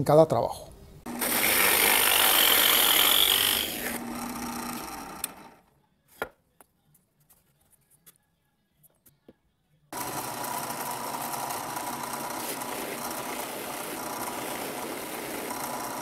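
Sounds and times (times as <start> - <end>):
drill press cutting wood: 1.1 - 5.6, 10.0 - 16.0.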